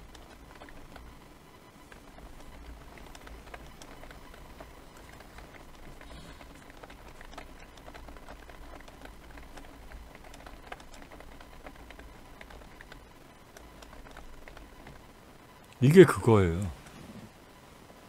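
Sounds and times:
keyboard typing: 0.0s - 1.2s, 1.8s - 15.0s
low steady hum: 0.0s - 18.0s.

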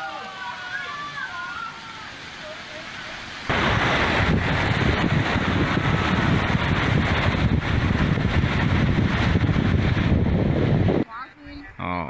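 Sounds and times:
wind buffeting microphone: 3.5s - 11.8s.

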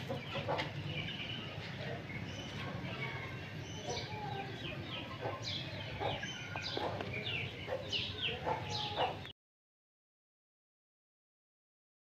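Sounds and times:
birds chirping: 0.0s - 9.3s.

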